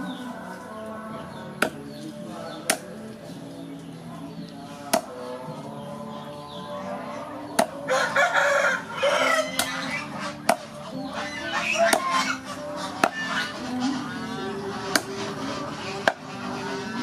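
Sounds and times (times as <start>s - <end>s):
cleaver chopping on wooden block: 1.6s - 1.8s, 2.6s - 3.0s, 4.9s - 5.1s, 7.6s - 7.8s, 10.4s - 10.8s, 11.8s - 12.2s, 13.0s - 13.2s, 16.0s - 16.2s
rooster crowing: 7.8s - 9.9s.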